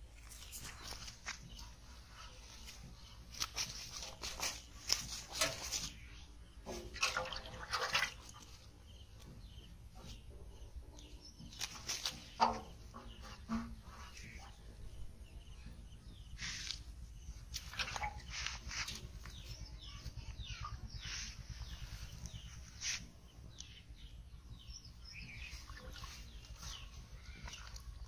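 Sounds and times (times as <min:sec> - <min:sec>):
fish thrashing in water pot: 0:02.9 - 0:06.0, 0:06.6 - 0:08.9, 0:17.5 - 0:19.2.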